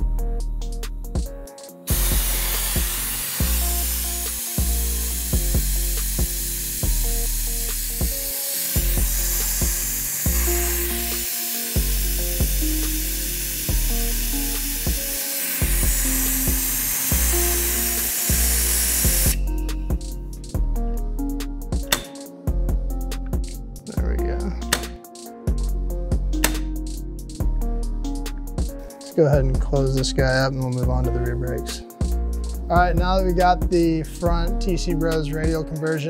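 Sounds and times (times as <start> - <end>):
music with heavy bass and beat: 0.0 - 36.0
hiss of compressed air: 1.6 - 20.5.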